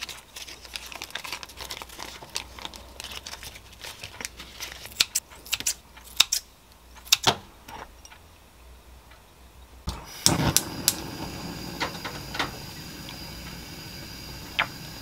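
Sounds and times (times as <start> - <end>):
scissors snipping bacon: 4.9 - 6.4
gas burner hissing: 9.9 - 15.0.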